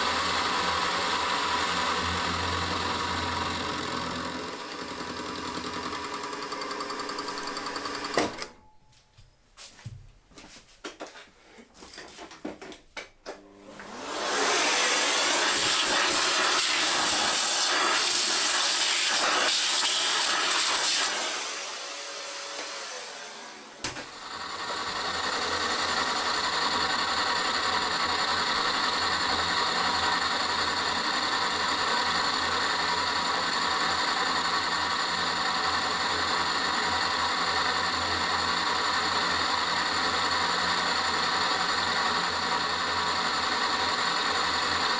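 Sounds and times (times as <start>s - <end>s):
end mill cutting steel: 0.0s - 8.5s
milling spindle with gear whine: 0.0s - 8.5s, 13.8s - 44.9s
vacuum rushing noise: 13.8s - 18.0s.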